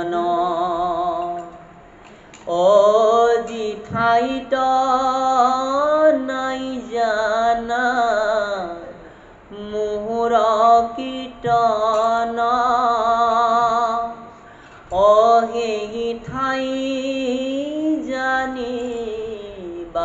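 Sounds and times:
man chanting: 0.0 - 1.6, 2.5 - 14.3, 14.9 - 20.0
breath: 2.0 - 2.4, 9.0 - 9.5, 14.3 - 14.9.

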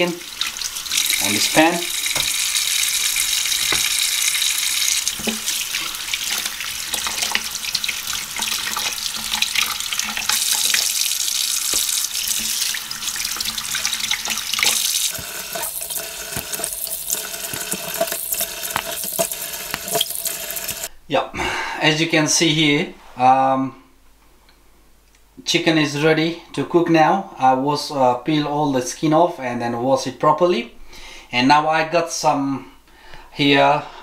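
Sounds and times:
tap water running into sink: 0.0 - 20.9.

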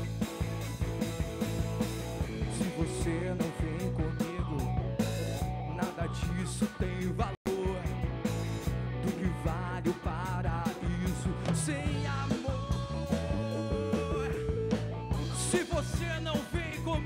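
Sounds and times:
drums: 0.0 - 17.0
electric bass: 0.0 - 17.0
electric guitar: 0.0 - 17.0
man singing: 2.2 - 4.8, 5.7 - 8.0, 9.0 - 17.0.

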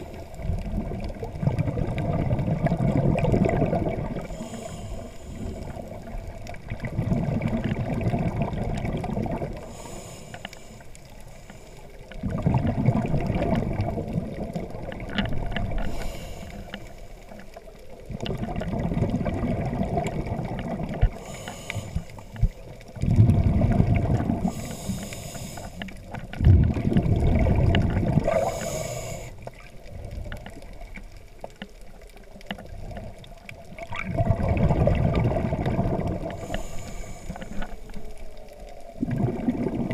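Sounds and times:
underwater exhaled bubbles rumbling: 0.0 - 39.9
faint breathing hisses: 4.2 - 5.9, 9.6 - 12.1, 15.8 - 17.4, 21.1 - 22.7, 24.4 - 26.0, 28.3 - 29.5, 36.3 - 38.4.

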